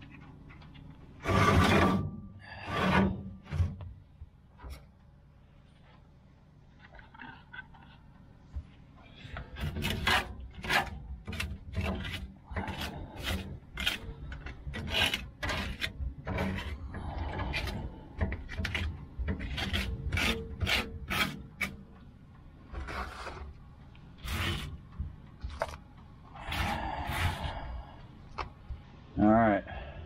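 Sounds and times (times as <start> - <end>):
hand scraper scraping steel: 1.2 - 3.8, 9.2 - 22.0, 24.2 - 25.0, 26.4 - 27.7.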